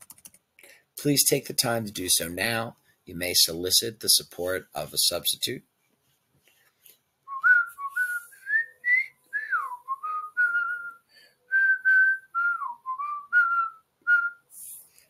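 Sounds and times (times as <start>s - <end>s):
person whistling a tune: 7.3s - 14.5s.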